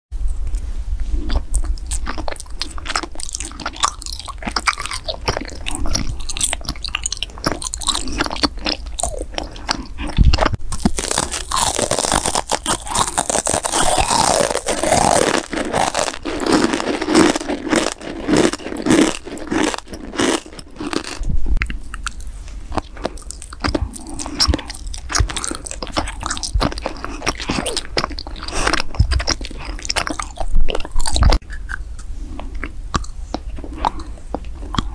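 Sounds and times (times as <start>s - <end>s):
mouth chewing candy: 0.2s - 34.9s.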